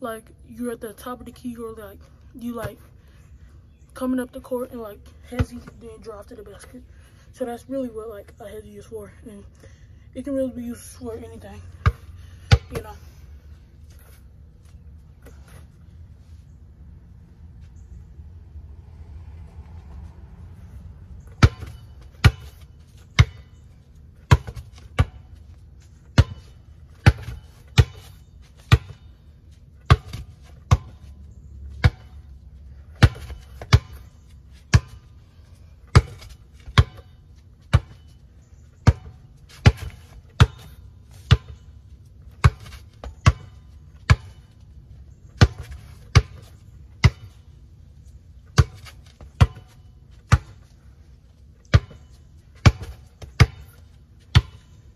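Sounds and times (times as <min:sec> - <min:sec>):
basketball bouncing: 0:11.8 - 0:13.0, 0:21.2 - 0:23.5, 0:24.2 - 0:25.4, 0:26.1 - 0:29.1, 0:29.8 - 0:31.2, 0:31.8 - 0:32.3, 0:32.9 - 0:35.1, 0:35.8 - 0:38.2, 0:38.8 - 0:41.6, 0:42.3 - 0:44.6, 0:45.4 - 0:47.4, 0:48.5 - 0:50.7, 0:51.7 - 0:54.8.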